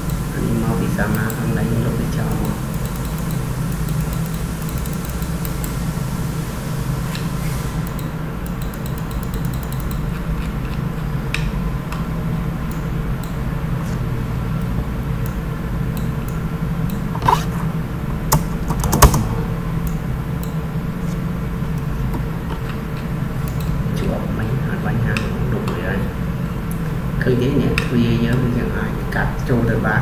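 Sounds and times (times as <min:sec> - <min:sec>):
steady low hum: 0:00.0 - 0:30.0
mouse and keyboard clicks: 0:07.8 - 0:11.5.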